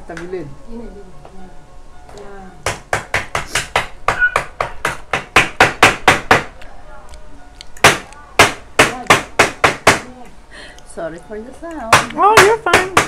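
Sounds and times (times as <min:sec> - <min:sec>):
crab shells being pounded: 0:02.6 - 0:06.6, 0:07.8 - 0:10.1, 0:11.9 - 0:13.0.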